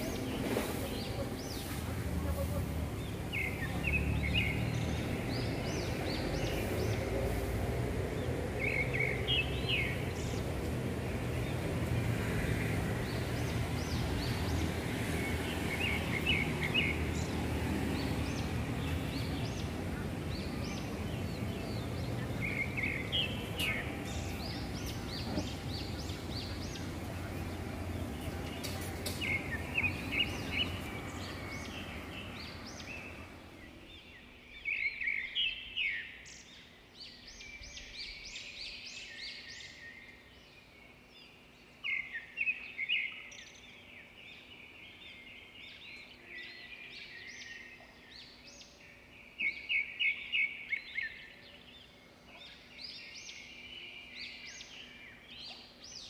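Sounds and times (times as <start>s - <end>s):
city rumble: 0.0s - 35.2s
birds chirping: 0.0s - 56.0s.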